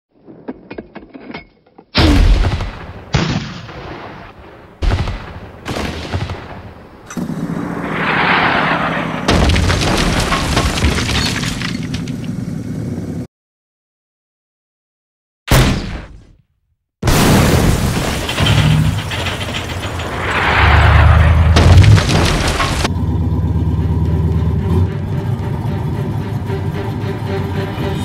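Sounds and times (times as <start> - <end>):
cannon shots: 2.0 - 7.2, 7.9 - 11.2, 15.5 - 16.4, 17.0 - 22.9
loud blast: 17.0 - 22.9
low drone with rushing: 22.5 - 28.0.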